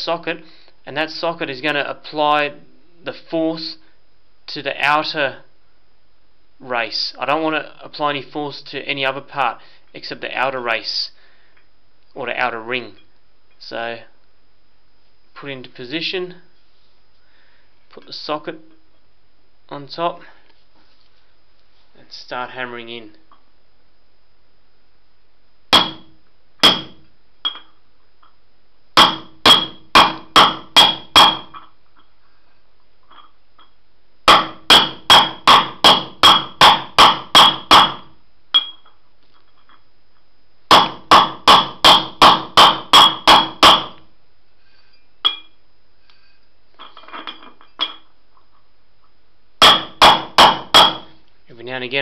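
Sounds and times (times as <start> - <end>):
hammer tapping on metal: 29.0 - 31.6, 34.3 - 38.9, 40.7 - 44.0.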